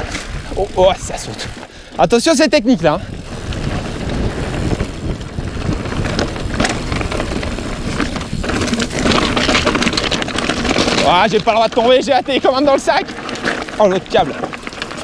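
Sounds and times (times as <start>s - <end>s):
bike rattling over rocks: 0.0s - 15.0s
wind rush over microphone: 2.8s - 11.8s.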